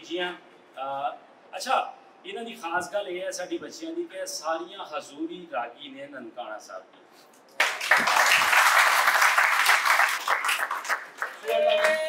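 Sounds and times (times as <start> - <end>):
audience clapping: 7.6 - 12.0.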